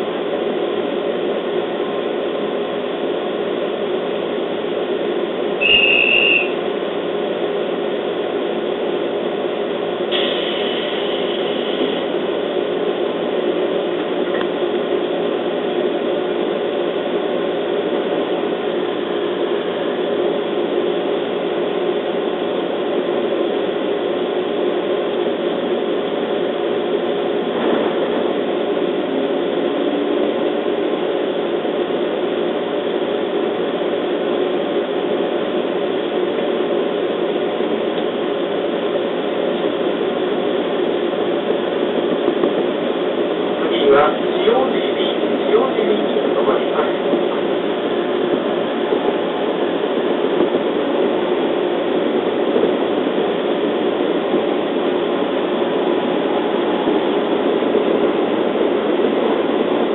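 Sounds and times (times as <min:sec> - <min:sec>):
train equipment hum: 0:00.0 - 0:59.9
faint high tone: 0:05.6 - 0:06.6
loud high beep: 0:05.6 - 0:06.6.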